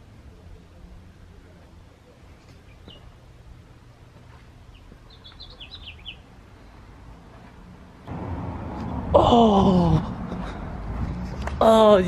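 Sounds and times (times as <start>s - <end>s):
faint low outdoor rumble: 0.0s - 12.0s
small bird chirping: 2.3s - 3.2s, 4.7s - 6.3s.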